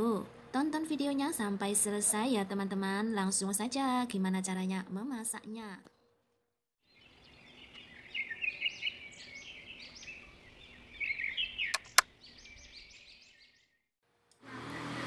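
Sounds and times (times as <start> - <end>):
small birds chirping: 6.8 - 13.9
sharp clicks: 11.7 - 12.1.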